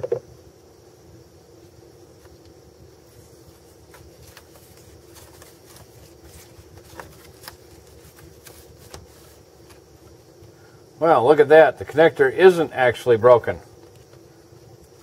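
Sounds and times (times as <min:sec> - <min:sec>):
electrical tape crinkling: 0:02.2 - 0:10.5, 0:13.7 - 0:15.0.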